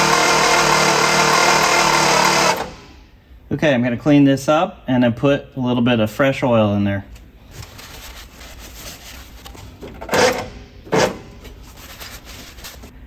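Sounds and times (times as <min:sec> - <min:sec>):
paper towel wiping metal: 0:07.6 - 0:09.7, 0:11.4 - 0:12.9.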